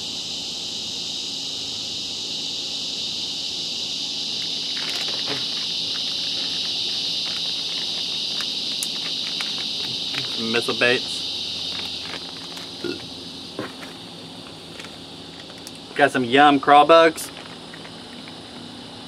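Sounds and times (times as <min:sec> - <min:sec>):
insects chirring: 0:00.0 - 0:19.0
plastic packaging crinkling: 0:04.4 - 0:13.1.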